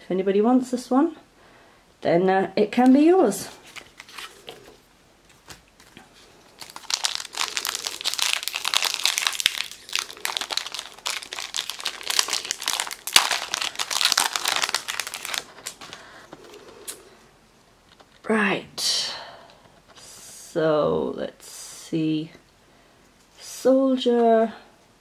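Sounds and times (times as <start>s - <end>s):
foil wrapper crinkling: 3.5s - 16.3s.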